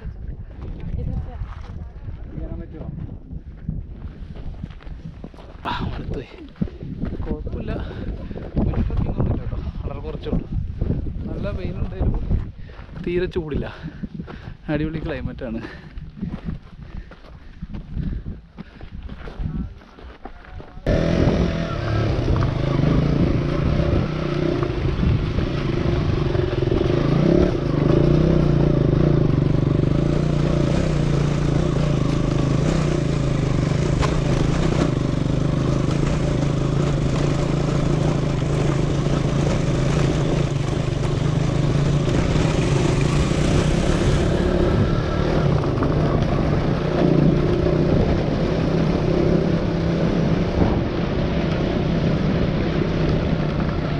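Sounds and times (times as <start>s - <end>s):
motorcycle engine running: 20.8s - 53.9s.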